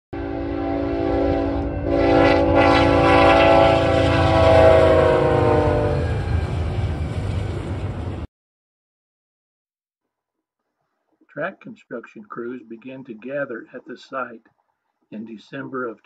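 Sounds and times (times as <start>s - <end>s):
locomotive air horn chord: 0.2s - 6.5s
rumble of passing train cars: 0.2s - 8.3s.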